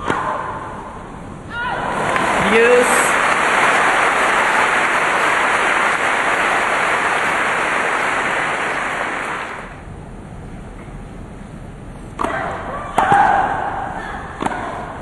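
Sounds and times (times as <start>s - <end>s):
crowd applauding: 1.8s - 9.8s.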